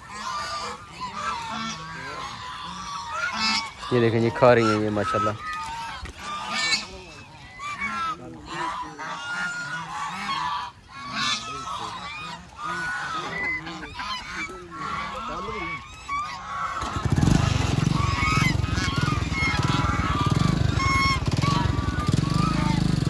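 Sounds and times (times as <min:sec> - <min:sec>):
ducks quacking: 0:00.0 - 0:23.0
loud low rumble: 0:16.9 - 0:23.0.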